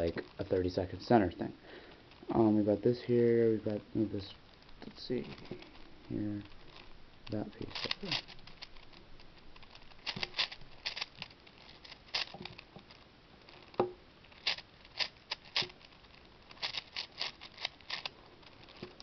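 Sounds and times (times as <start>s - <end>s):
puzzle cube clicking: 4.7s - 13.0s, 13.7s - 19.0s.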